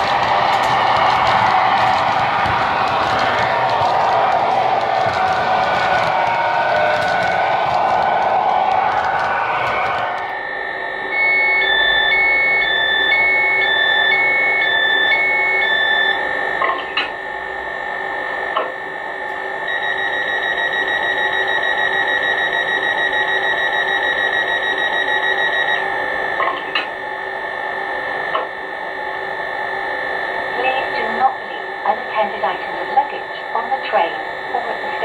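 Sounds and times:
rapid pulsing beep: 0:10.2 - 0:35.0
two-pitch electronic beeps: 0:11.0 - 0:17.0.

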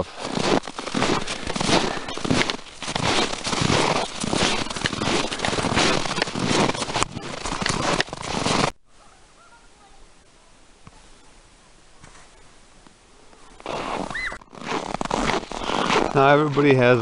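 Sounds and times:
footsteps crunching on snow: 0:00.0 - 0:08.8, 0:13.4 - 0:17.0.

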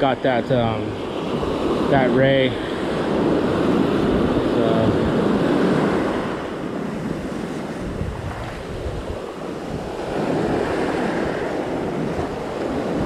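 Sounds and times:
ocean surf breaking: 0:00.0 - 0:13.0
wind buffeting microphone: 0:00.0 - 0:13.0.

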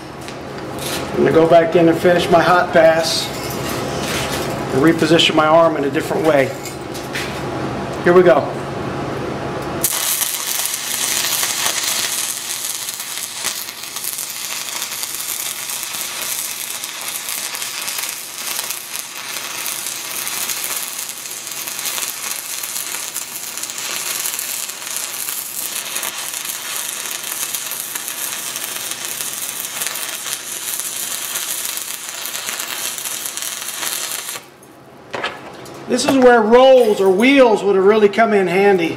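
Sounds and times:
arc welding crackle and sizzle: 0:09.6 - 0:34.6.

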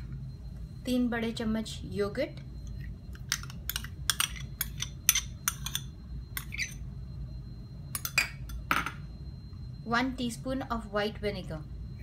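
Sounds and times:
steady low hum: 0:00.0 - 0:12.0
metal spoon scraping a bowl: 0:03.3 - 0:06.8.

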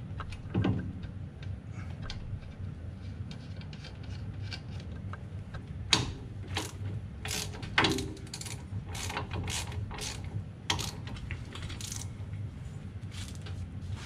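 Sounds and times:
hand ratchet clicking: 0:06.0 - 0:12.1.

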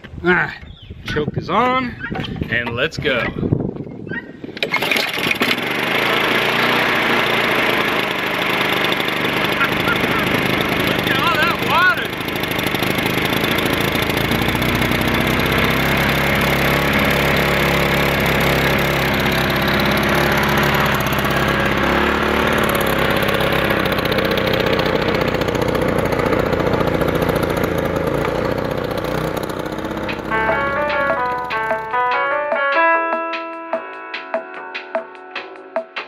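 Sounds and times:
lawn mower engine running: 0:04.6 - 0:32.3.

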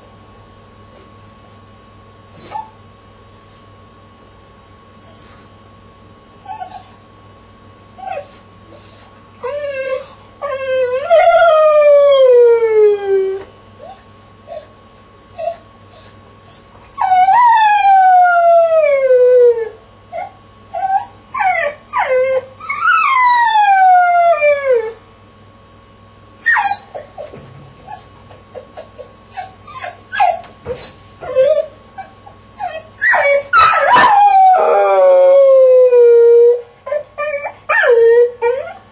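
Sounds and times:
dog whimpering and yipping: 0:02.3 - 0:02.8, 0:06.4 - 0:07.0, 0:08.0 - 0:11.8, 0:15.4 - 0:18.6, 0:20.2 - 0:24.9, 0:26.4 - 0:38.9
dog howling: 0:08.0 - 0:14.7, 0:15.4 - 0:25.0, 0:26.4 - 0:38.9.

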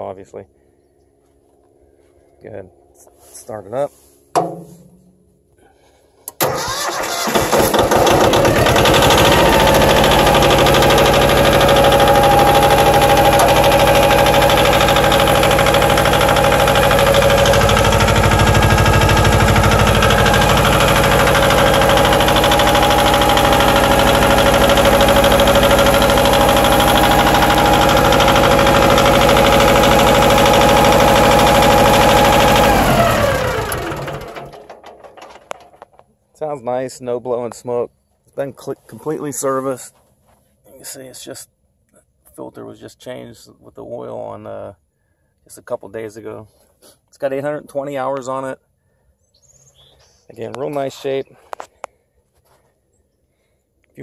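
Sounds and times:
tractor diesel engine running: 0:06.4 - 0:35.9.

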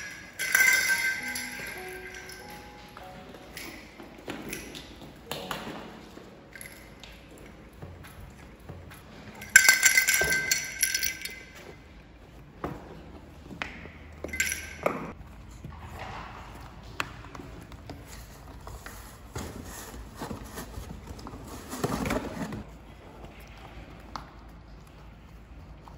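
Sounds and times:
rustling in cardboard: 0:18.0 - 0:22.8.

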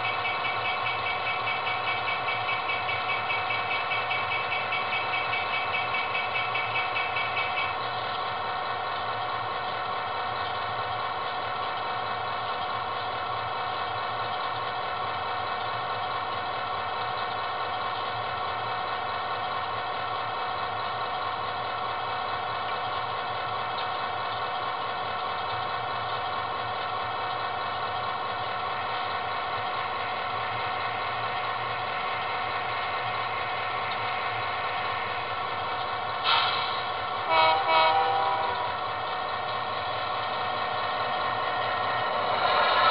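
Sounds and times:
diesel engine idling through small speaker: 0:00.0 - 0:42.9.

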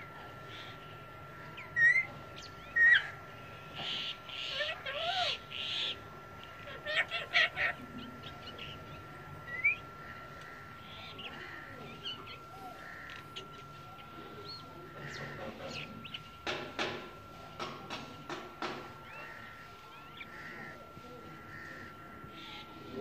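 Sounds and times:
faint steady high tone: 0:00.0 - 0:23.0
parakeet calls and chirps: 0:00.5 - 0:16.5.

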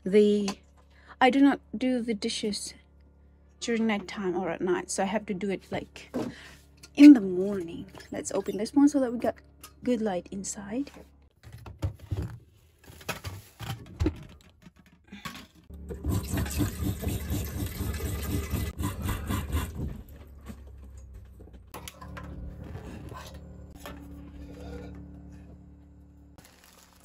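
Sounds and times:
faucet water running into pot: 0:15.9 - 0:18.8
steady low hum: 0:18.8 - 0:26.4.

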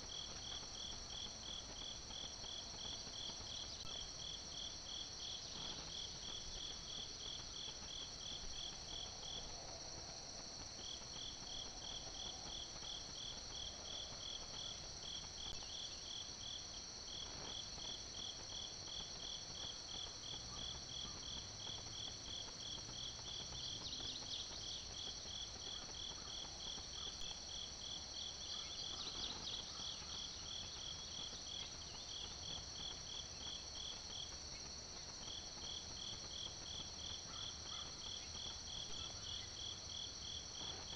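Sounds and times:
crickets trilling: 0:00.0 - 0:40.9
pulsing cricket chirping: 0:00.0 - 0:40.9.

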